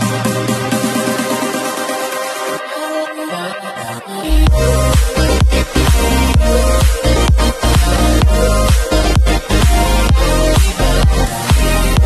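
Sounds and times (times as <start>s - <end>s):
electronic dance music: 0.0s - 12.0s
kick drum beat: 4.5s - 12.0s.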